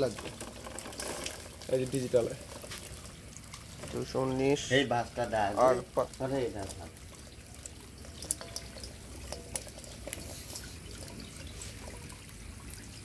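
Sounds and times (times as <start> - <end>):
water trickling: 0.0 - 13.0
fish flipping in steel bowl: 7.6 - 12.2.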